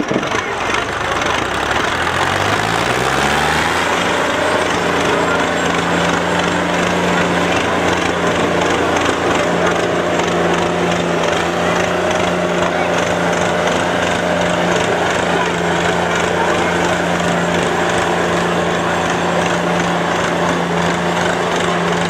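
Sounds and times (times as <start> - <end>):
tractor diesel engine revving: 0.0 - 22.0.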